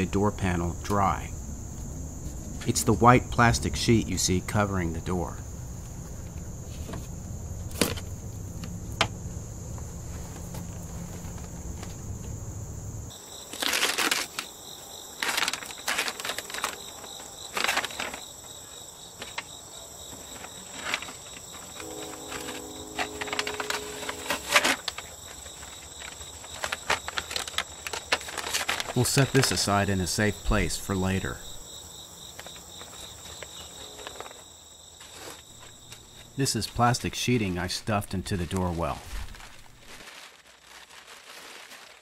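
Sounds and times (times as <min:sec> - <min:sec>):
insects droning: 0:00.0 - 0:42.0
plastic sheet crinkling: 0:13.4 - 0:18.4, 0:20.2 - 0:29.7, 0:38.5 - 0:42.0.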